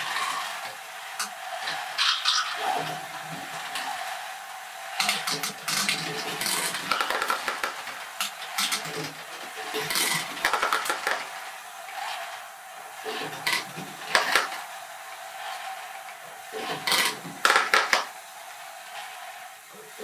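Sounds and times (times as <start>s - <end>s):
motor whirring: 0.0s - 20.0s
plastic balls clattering: 5.0s - 14.7s, 15.5s - 18.2s.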